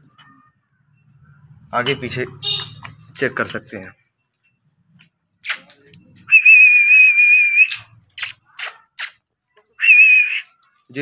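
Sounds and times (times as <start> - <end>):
person whistling: 6.3 - 7.9, 9.8 - 10.4.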